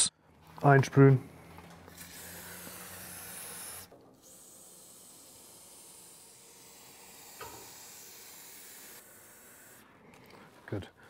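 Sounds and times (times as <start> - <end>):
aerosol spray hissing: 1.9 - 9.8.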